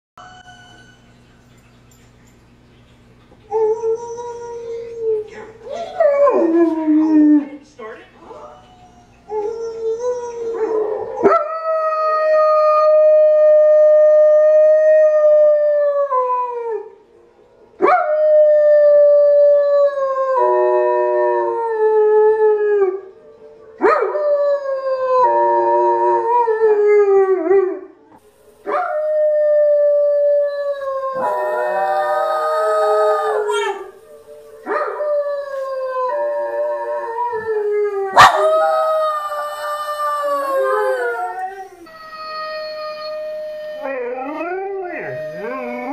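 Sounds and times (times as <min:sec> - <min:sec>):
howls from a tv: 0:00.2 - 0:01.2, 0:03.5 - 0:07.6, 0:08.2 - 0:45.9
dogs howling: 0:03.5 - 0:07.6, 0:08.3 - 0:16.9, 0:28.7 - 0:45.9.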